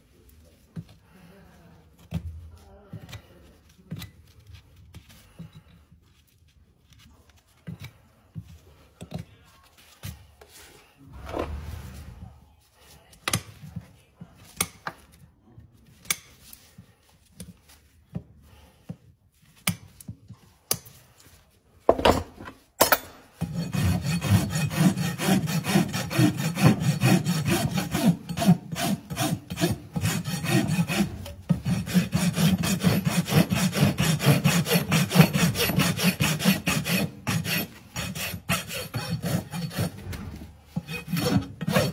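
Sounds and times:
hand tools scraping hoof: 16.0s - 41.9s
rasp filing hoof: 23.4s - 41.9s.

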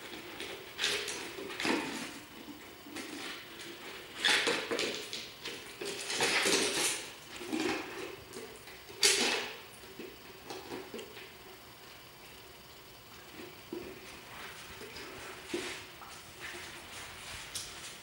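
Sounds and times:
puppy scuffling: 13.2s - 18.0s.

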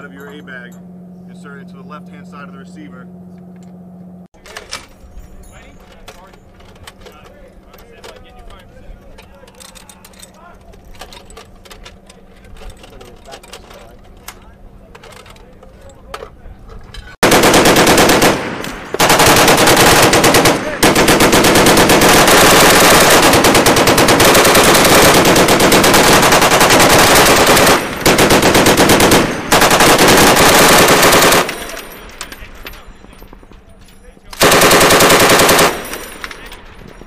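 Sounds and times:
machine gun firing bursts: 17.2s - 32.0s, 34.4s - 36.3s.

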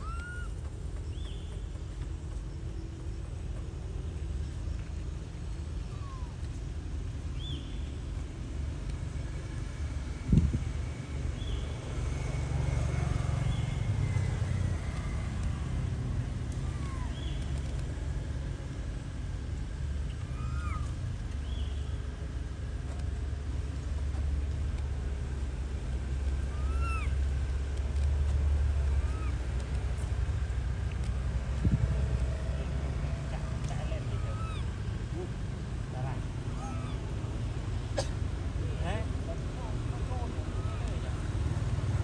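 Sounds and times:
high chirping calls: 26.5s - 27.2s, 34.0s - 34.8s.

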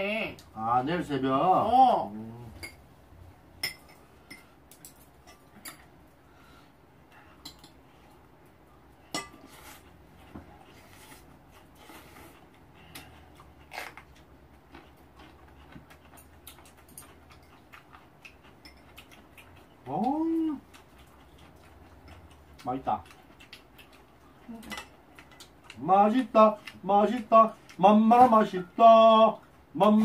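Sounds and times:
utensils clinking against bowls: 18.6s - 19.2s, 24.6s - 25.4s.

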